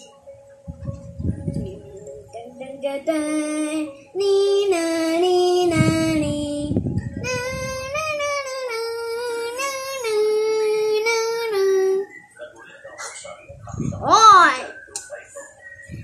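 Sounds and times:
young child singing: 1.4 - 12.1.

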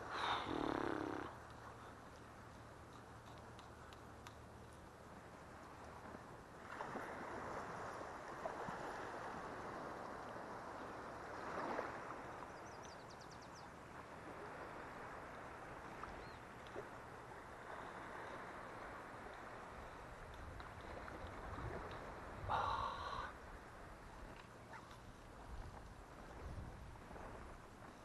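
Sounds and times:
legs wading through water: 0.0 - 28.0.

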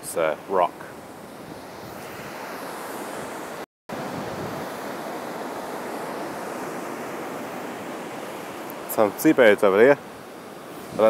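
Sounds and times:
ocean surf washing: 0.0 - 11.0.

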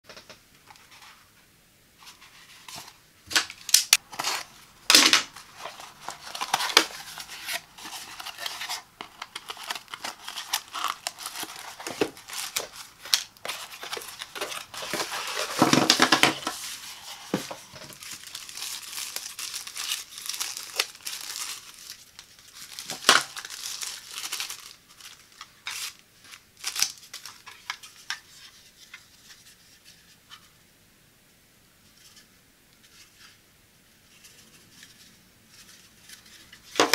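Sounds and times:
plastic bags crinkling and tearing: 3.3 - 28.0.

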